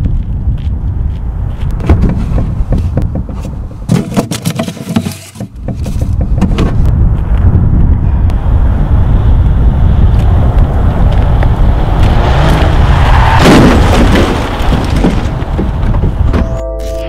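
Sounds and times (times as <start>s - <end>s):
wind rumbling on microphone: 0.0s - 16.6s
mailbox clicks and scrapes: 3.3s - 6.8s.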